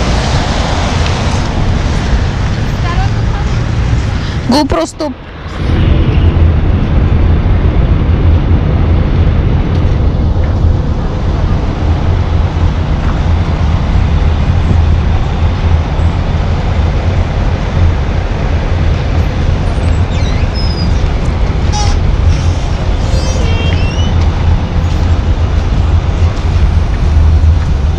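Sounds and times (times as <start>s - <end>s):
diesel buses idling: 0.0s - 27.9s
street traffic noise: 0.0s - 27.9s
short high squeaks: 19.8s - 21.1s, 21.7s - 24.3s.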